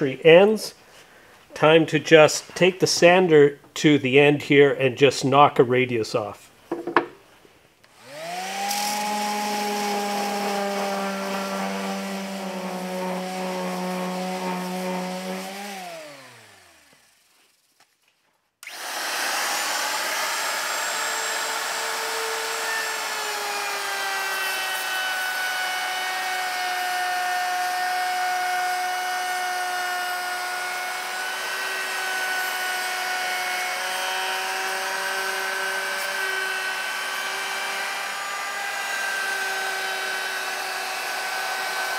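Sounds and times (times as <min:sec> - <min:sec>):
router cutting wood: 0:07.9 - 0:17.5, 0:18.6 - 0:41.9
power tool motor spinning: 0:07.9 - 0:17.6, 0:18.6 - 0:26.5.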